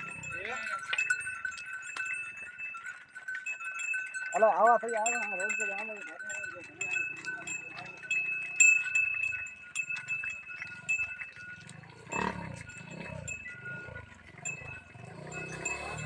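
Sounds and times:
cow lowing: 0:00.0 - 0:01.3, 0:06.2 - 0:16.0
cattle bells ringing: 0:00.0 - 0:16.0.

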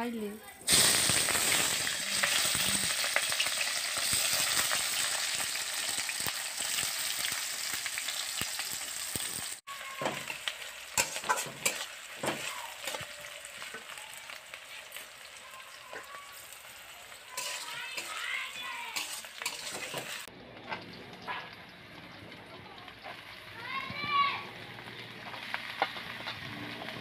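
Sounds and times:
onions sizzling in hot oil: 0:00.0 - 0:27.0
metal spatula scraping wok: 0:09.2 - 0:20.9.

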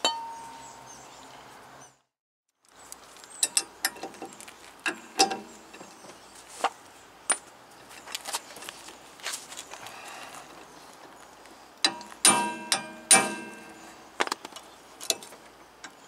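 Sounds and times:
metal tool knocking on brake rotor: 0:11.8 - 0:13.9.

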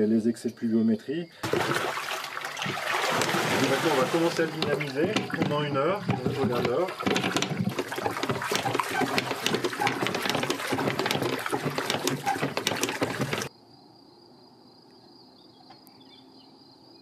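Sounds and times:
water sloshing in a barrel: 0:01.4 - 0:13.5.

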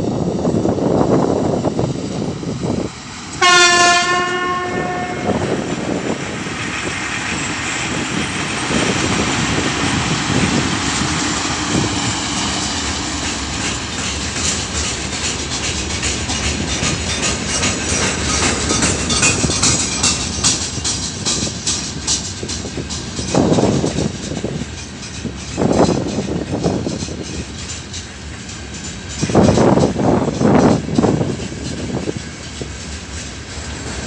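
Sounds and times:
freight train rumbling past: 0:00.0 - 0:34.0
locomotive horn blast: 0:03.4 - 0:05.8
wheels clicking over rail joints: 0:04.5 - 0:34.0.

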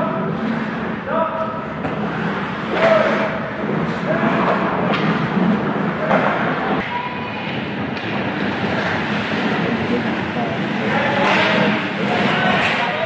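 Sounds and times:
skates scraping on ice: 0:00.2 - 0:01.0, 0:01.7 - 0:06.8, 0:07.5 - 0:13.0
hockey sticks and puck knocking: 0:01.8 - 0:06.8, 0:10.8 - 0:13.0.

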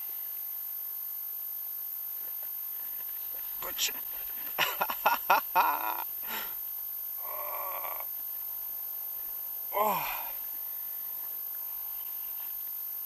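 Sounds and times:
faint steady hiss: 0:00.0 - 0:13.0
man humming: 0:03.6 - 0:06.6, 0:07.2 - 0:08.2, 0:09.7 - 0:10.5.

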